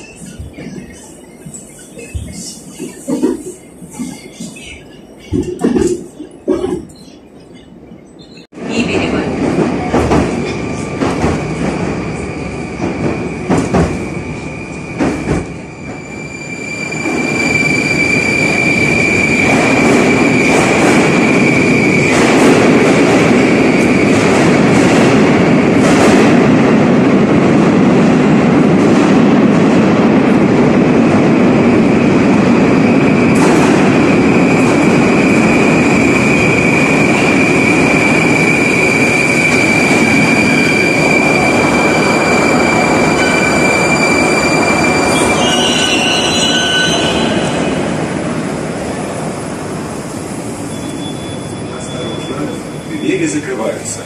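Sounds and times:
rail joint clacks: 0.0 - 12.0
train wheels on rails: 0.0 - 54.0
high-pitched wheel squeal: 36.1 - 47.8, 50.6 - 53.2.

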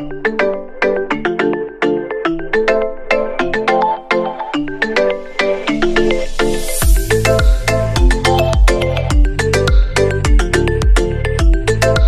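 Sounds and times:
quick melody of bright notes: 3.1 - 11.2.

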